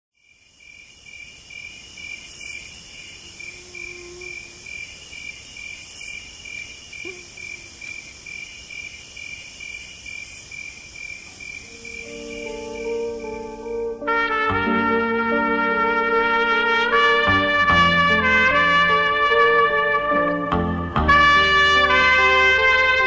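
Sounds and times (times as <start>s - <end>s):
insects chirping: 0.2s - 14.2s
shrill insect buzz: 0.2s - 16.4s.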